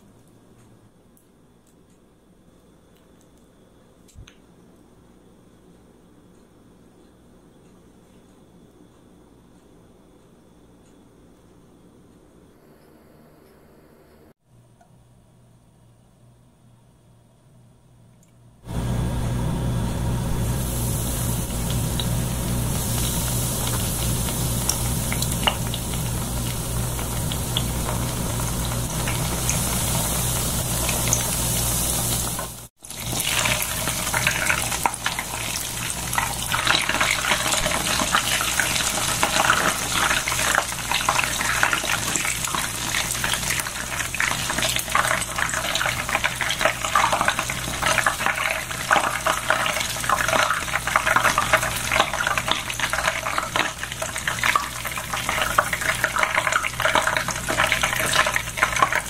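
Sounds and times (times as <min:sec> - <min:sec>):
food frying in hot oil: 0:18.7 - 0:59.0.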